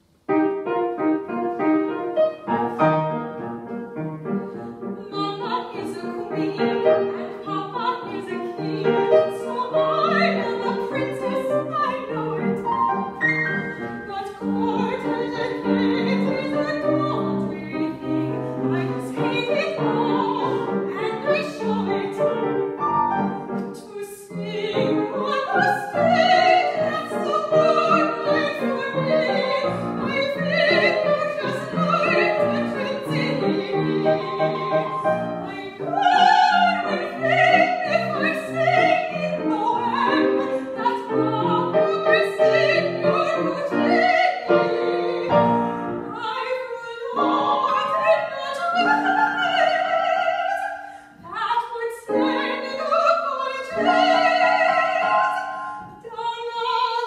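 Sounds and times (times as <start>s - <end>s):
grand piano: 0.0s - 57.0s
soprano singing: 0.3s - 57.0s.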